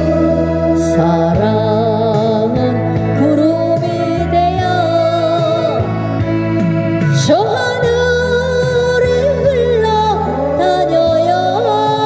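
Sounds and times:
recorded backing track: 0.0s - 12.0s
woman singing into microphone: 0.0s - 12.0s.

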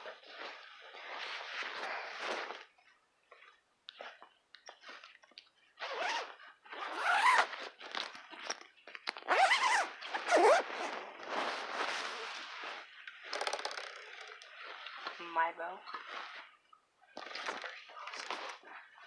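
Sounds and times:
fabric rustling: 0.0s - 13.3s
zipper being pulled: 5.8s - 8.1s, 9.2s - 13.7s.

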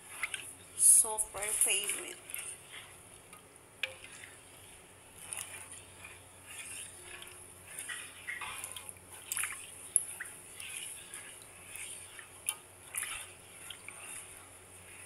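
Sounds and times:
liquid sloshing and squelching: 0.0s - 15.0s.

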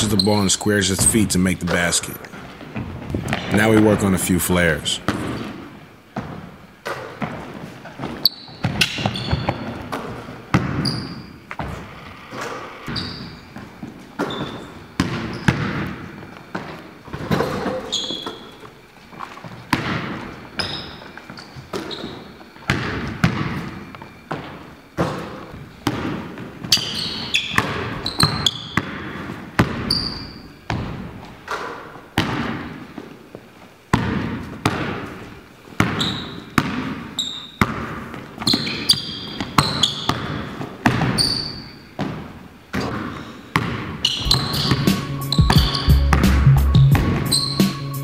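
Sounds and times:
sneaker squeaks: 0.0s - 4.0s, 5.0s - 48.0s
ball striking backboard and rim: 5.0s - 5.6s, 8.6s - 11.7s, 14.2s - 16.0s, 42.0s - 47.7s.

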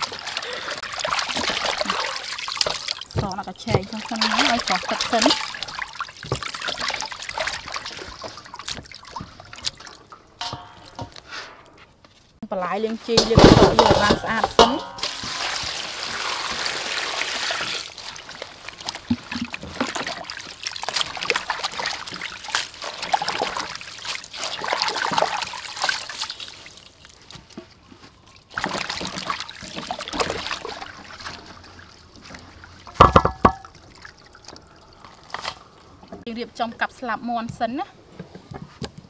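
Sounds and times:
water splashing and dripping: 0.0s - 11.7s, 12.9s - 36.3s
water poured into steel bowl: 13.7s - 26.7s.

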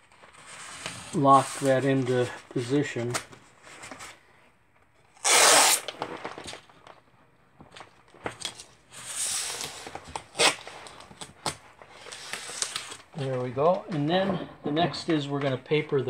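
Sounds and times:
tape unrolling: 5.0s - 6.7s, 7.7s - 13.7s
masking tape ripped off roll: 5.1s - 6.0s, 9.0s - 10.7s.

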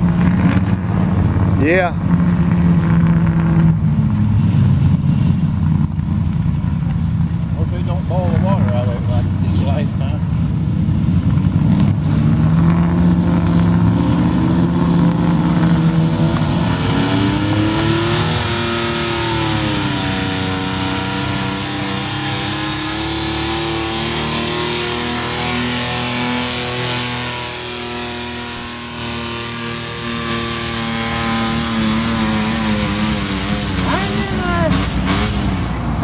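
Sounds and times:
pickup engine revving: 0.0s - 36.0s.

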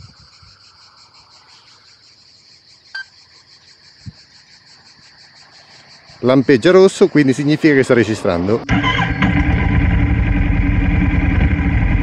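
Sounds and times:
crickets chirping: 0.0s - 9.4s.

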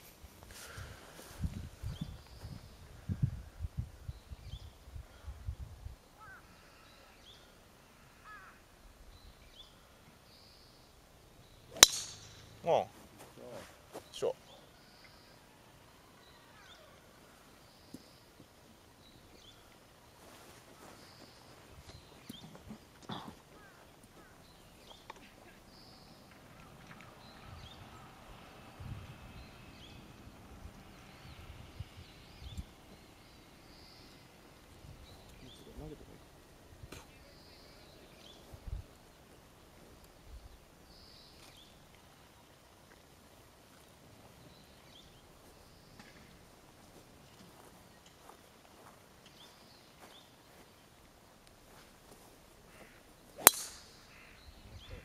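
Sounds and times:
birds chirping faintly: 0.0s - 55.0s
faint bird chirps: 6.1s - 11.9s
golf driver striking ball: 11.7s - 12.6s, 53.4s - 54.0s.

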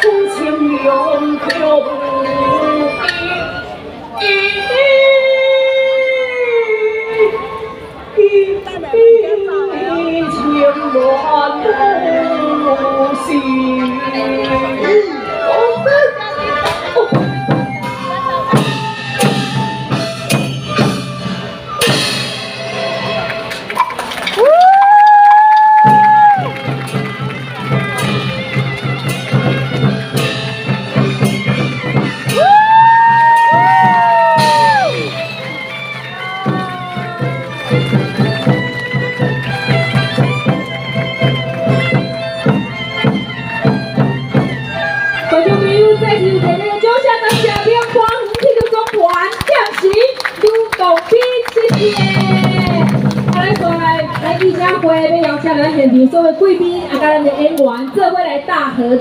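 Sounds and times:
held melody instrument notes: 0.0s - 24.3s, 26.2s - 49.3s
drum and wood-block strikes: 17.1s - 44.7s, 45.3s - 50.1s, 51.6s - 55.8s.

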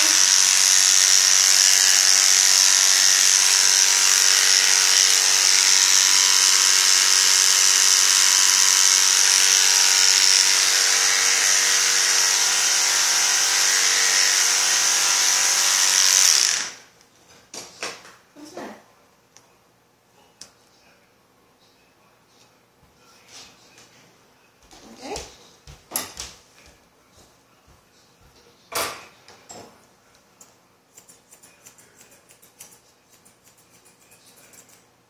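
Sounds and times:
electric clippers buzzing: 0.0s - 16.9s.

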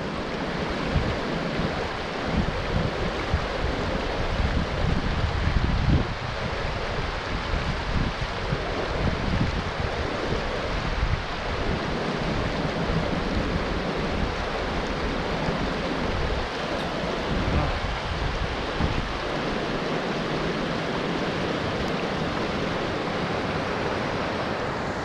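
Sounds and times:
creek rushing over rocks: 0.0s - 25.0s
wind buffeting microphone: 0.0s - 25.0s.

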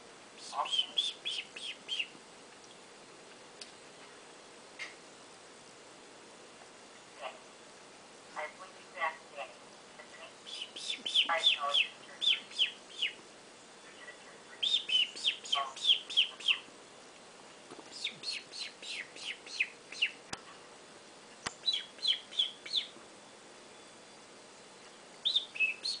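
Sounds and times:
bird-like chirping whistles: 0.4s - 2.1s, 10.5s - 13.2s, 14.6s - 16.7s, 18.0s - 20.2s, 21.6s - 23.0s, 25.2s - 26.0s.

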